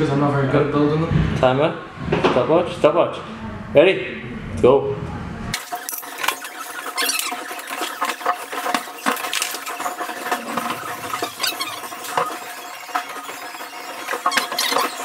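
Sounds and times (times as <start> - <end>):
high squeaky sliding: 6.1 - 15.0.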